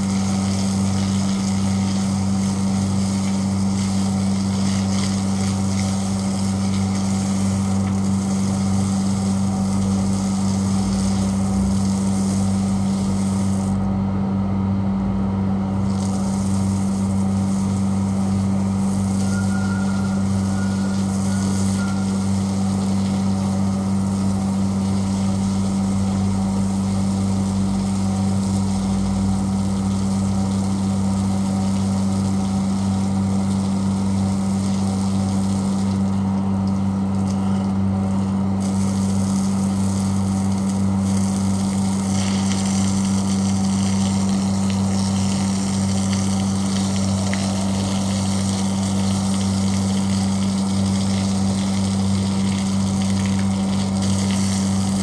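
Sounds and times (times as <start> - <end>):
water spraying from hose: 0.0 - 13.9, 15.7 - 55.0
electric motor humming: 41.8 - 51.6.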